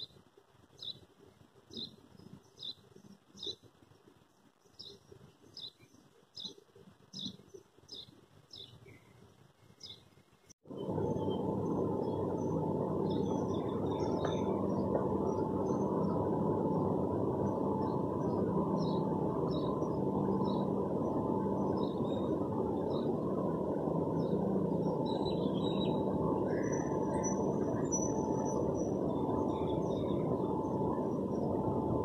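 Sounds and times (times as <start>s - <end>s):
faint hum: 0.0s - 32.0s
traffic noise: 10.6s - 32.0s.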